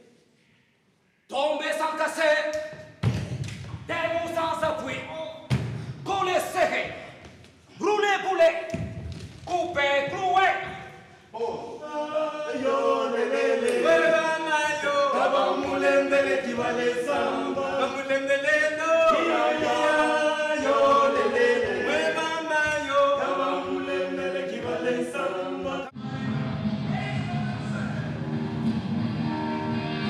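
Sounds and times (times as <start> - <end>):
group singing a cappella: 11.5 - 26.0.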